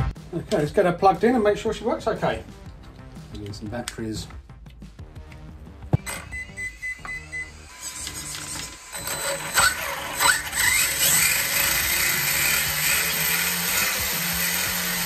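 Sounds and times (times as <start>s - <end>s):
speed controller beep: 6.0s - 7.7s
electric motor whirring: 6.0s - 15.0s.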